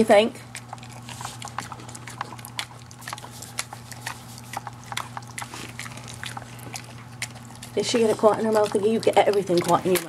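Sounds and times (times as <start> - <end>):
dog chewing and smacking: 0.0 - 10.0.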